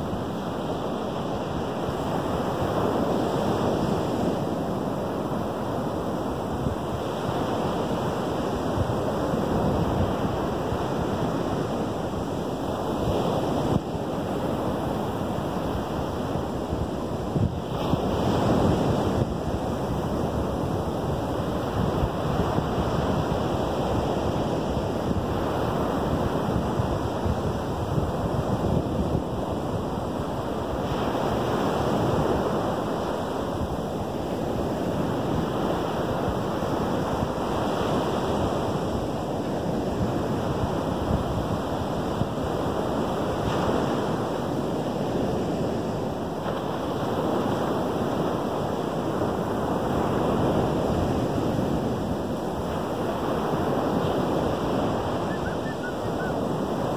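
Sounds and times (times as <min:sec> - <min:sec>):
wind on microphone: 0:00.0 - 0:56.9
surf breaking on sandy beach: 0:12.7 - 0:56.9.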